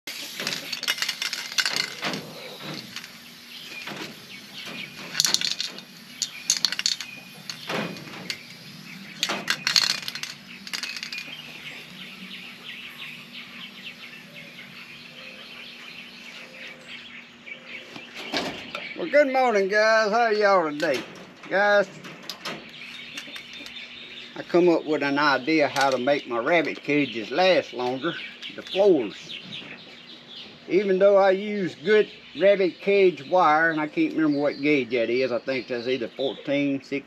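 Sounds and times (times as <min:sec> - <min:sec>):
spray can mixing ball rattling: 0:00.1 - 0:12.6.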